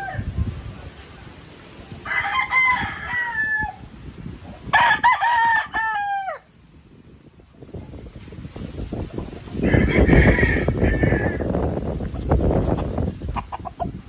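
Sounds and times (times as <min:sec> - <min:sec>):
rooster crowing: 0:02.0 - 0:03.8, 0:04.8 - 0:06.5, 0:09.6 - 0:11.5.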